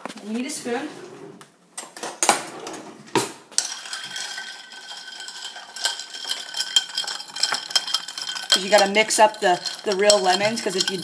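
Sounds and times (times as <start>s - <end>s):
spoon clinking in glass with ice: 3.6s - 11.0s.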